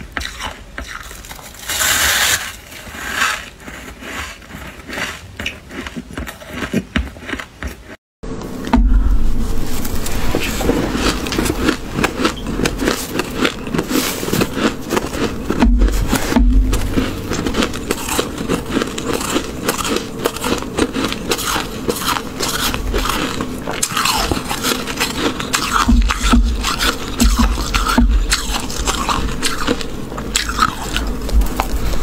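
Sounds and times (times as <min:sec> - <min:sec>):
frost crunching being chewed: 0:00.0 - 0:08.0, 0:09.8 - 0:32.0
metal spoon scraping frost: 0:00.2 - 0:05.9, 0:09.4 - 0:31.0.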